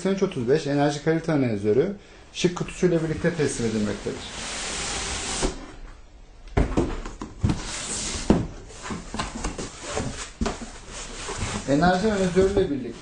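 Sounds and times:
cardboard rustling scrape: 7.4 - 13.0.

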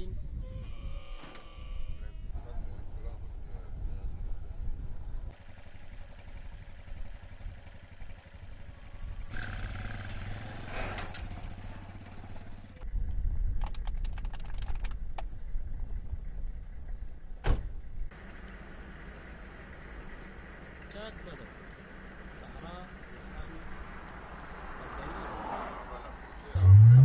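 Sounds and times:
motor tricycle engine running: 5.3 - 9.6, 18.2 - 24.1.

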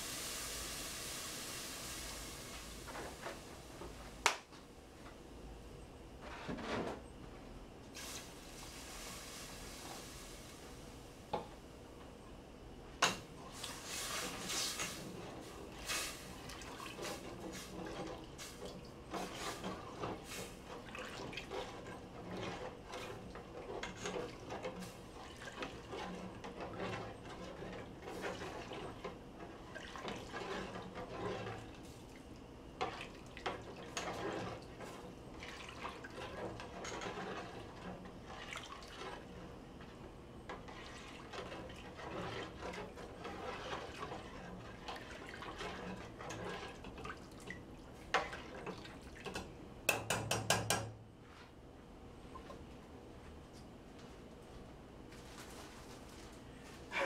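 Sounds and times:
liquid sloshing in a pot: 13.4 - 50.6.

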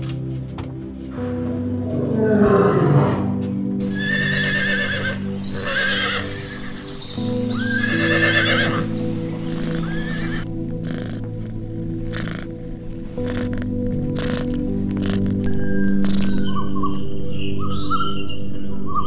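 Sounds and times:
background music with sustained tones: 0.0 - 19.0
horses whinnying: 1.8 - 6.8, 7.6 - 11.3, 12.0 - 12.6, 13.2 - 16.2.

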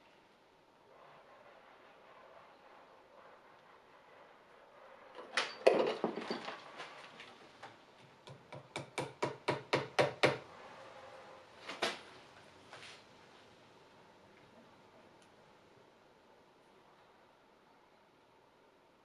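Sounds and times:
small hammer tapping: 8.2 - 10.4.

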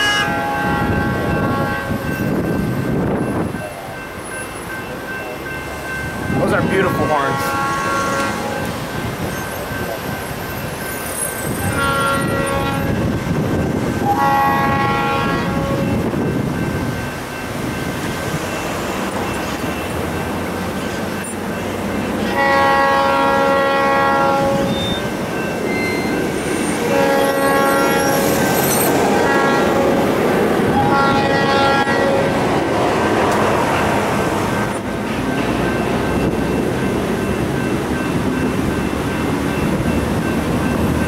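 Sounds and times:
locomotive air horn blasts: 0.0 - 2.1, 6.7 - 8.7, 11.6 - 13.0, 14.0 - 16.0, 22.2 - 25.1, 26.8 - 28.4, 29.1 - 30.0, 30.7 - 32.4
train rumbling: 0.0 - 41.0.

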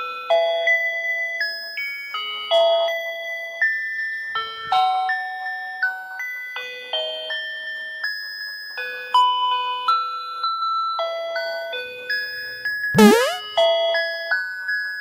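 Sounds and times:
electronic toy beeping tune: 13.0 - 13.4.

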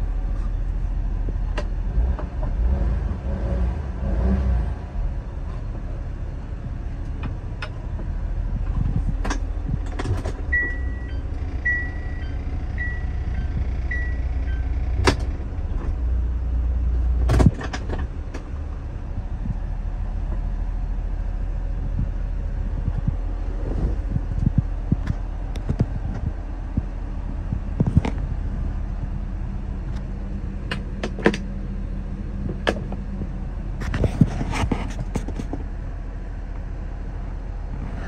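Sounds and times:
engine idling: 0.0 - 4.1, 4.8 - 38.0.

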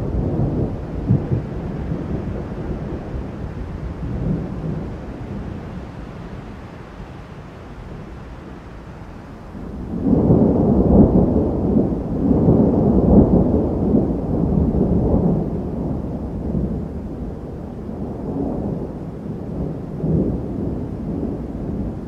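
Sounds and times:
thunder rumbling: 0.0 - 6.5, 9.4 - 22.0.

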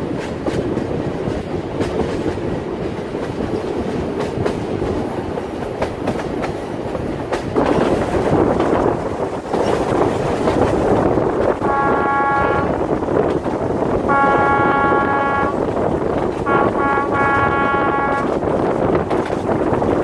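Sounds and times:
train coaches rumbling on rails: 0.0 - 20.0
train horn blasts: 11.6 - 12.9, 14.1 - 15.6, 16.4 - 18.4.

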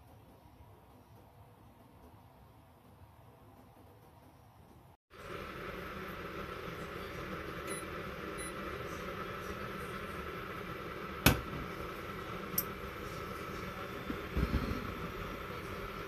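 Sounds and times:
short beeps from touch controls: 7.7 - 8.6.

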